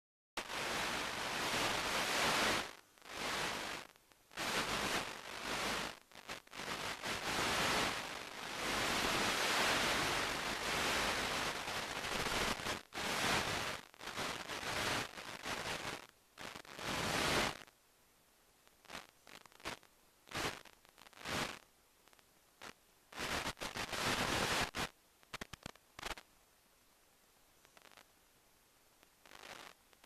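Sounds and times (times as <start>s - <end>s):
steady static hiss: 0.4s - 30.0s.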